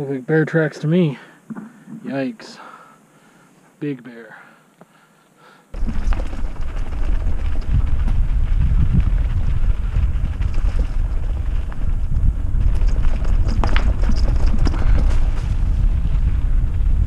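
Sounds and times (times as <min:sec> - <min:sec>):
bike rattles and clicks: 0:05.8 - 0:17.0
bike rumbling on rough trail: 0:05.8 - 0:17.0
wind buffeting microphone: 0:05.8 - 0:17.0.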